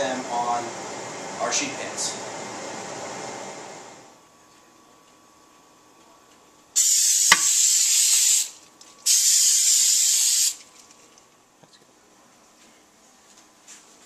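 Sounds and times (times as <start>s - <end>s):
aerosol spray hissing onto metal pans: 6.8s - 10.6s
spray can click: 7.2s - 8.4s.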